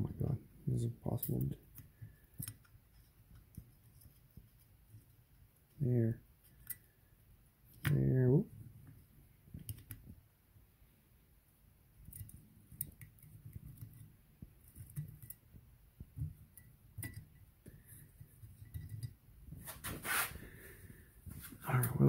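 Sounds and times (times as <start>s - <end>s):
light clicks and taps of parts: 1.2s - 5.8s, 8.8s - 10.2s, 12.0s - 19.2s
brief rustle: 19.6s - 20.5s.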